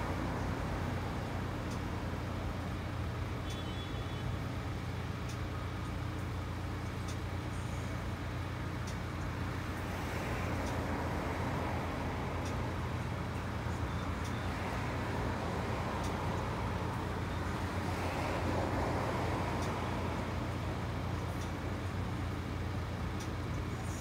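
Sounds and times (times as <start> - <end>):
car engines idling: 0.0 - 24.0
traffic noise: 0.0 - 24.0
faint ticks: 1.6 - 1.9, 3.4 - 3.9, 5.1 - 11.0, 12.4 - 14.5, 19.6 - 19.8, 21.1 - 24.0.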